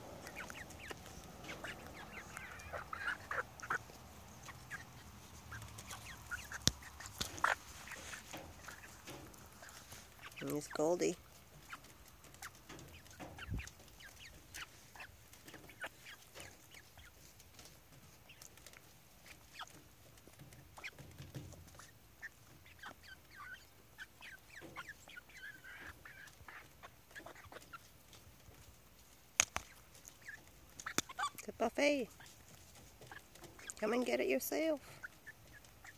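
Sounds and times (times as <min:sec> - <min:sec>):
beaks tapping on bowl: 0:00.0 - 0:17.0
hen calls: 0:00.0 - 0:17.1, 0:21.7 - 0:27.9.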